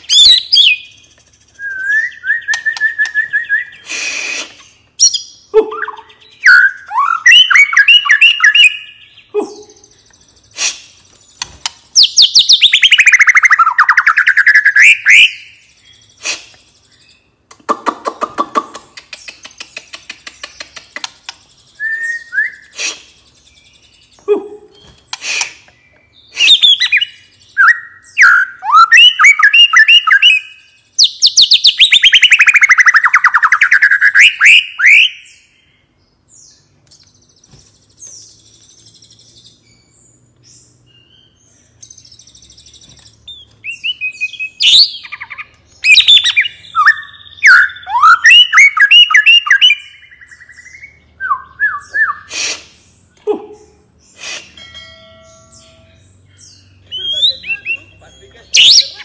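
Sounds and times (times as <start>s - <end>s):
bird singing whistled phrases: 0.0s - 10.0s, 12.0s - 17.2s, 21.6s - 25.5s, 26.2s - 35.5s, 40.9s - 52.6s, 56.4s - 59.0s
rapid bird trill: 0.0s - 17.4s, 19.0s - 59.0s.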